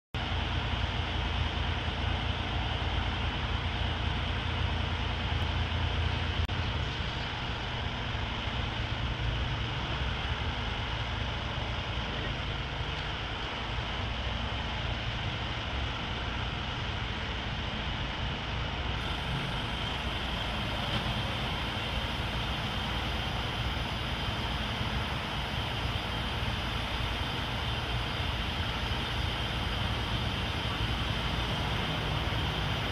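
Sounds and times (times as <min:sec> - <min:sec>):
diesel engine rumbling: 0:00.2 - 0:32.9
outdoor hiss: 0:19.0 - 0:32.9.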